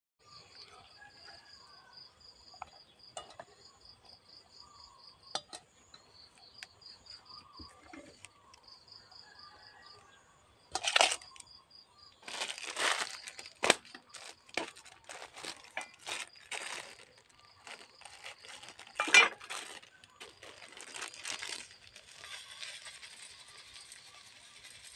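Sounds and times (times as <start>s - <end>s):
packaging rustling: 10.8s - 11.4s, 12.2s - 24.7s.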